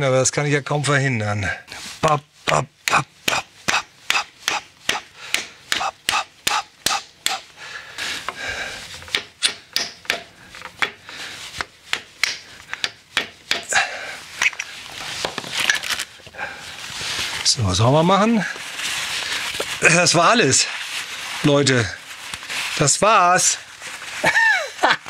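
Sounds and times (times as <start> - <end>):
hammer tapping on metal driver: 9.1 - 11.0, 11.9 - 13.7.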